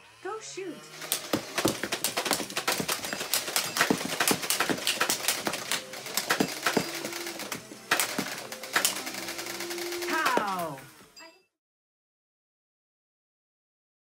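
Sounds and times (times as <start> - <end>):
toy blasters firing: 0.9 - 10.9
foam darts striking plastic targets: 1.1 - 9.0
target paddles clacking: 1.1 - 9.0.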